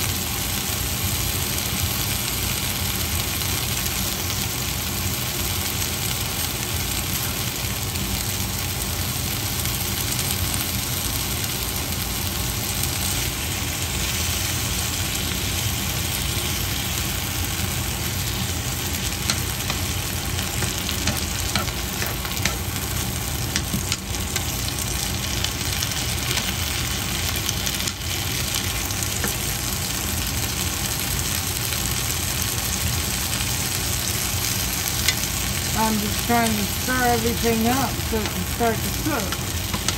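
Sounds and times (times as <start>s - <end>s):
vegetables sizzling in frying pan: 0.0s - 39.9s
steady low hum: 11.4s - 30.3s, 35.0s - 39.9s.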